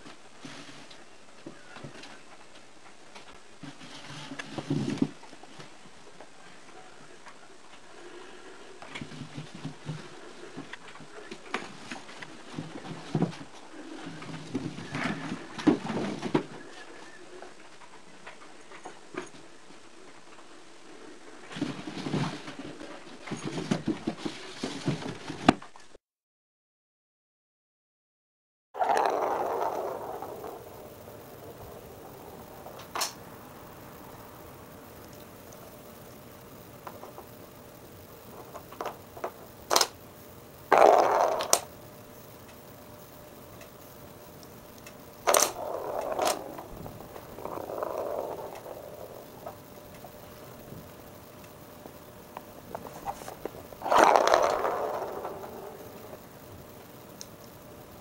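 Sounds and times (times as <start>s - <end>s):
ball knocking wooden pins: 28.8s - 33.2s, 40.7s - 41.7s, 45.3s - 49.6s
toy ball rolling clatter: 28.8s - 57.9s.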